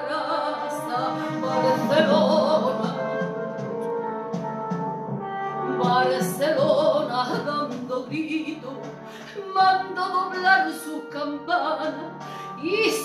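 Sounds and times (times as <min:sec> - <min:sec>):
woman singing: 0:00.0 - 0:03.8, 0:05.7 - 0:13.0
guitar accompaniment: 0:00.8 - 0:09.1.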